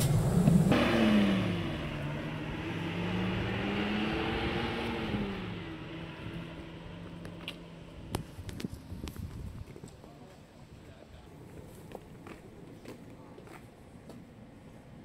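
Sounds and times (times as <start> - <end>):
diesel bus engine pulling away: 0.0 - 8.1.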